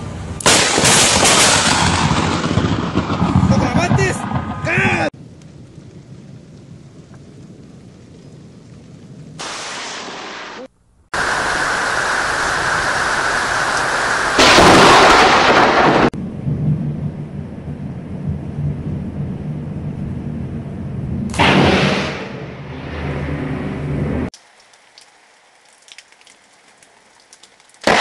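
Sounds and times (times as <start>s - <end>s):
low thunder rumble: 0.0s - 10.3s, 11.4s - 24.3s
loud thunder crack: 0.4s - 5.8s, 12.7s - 19.5s, 21.0s - 24.3s
rain hissing: 4.1s - 21.4s, 23.8s - 28.0s.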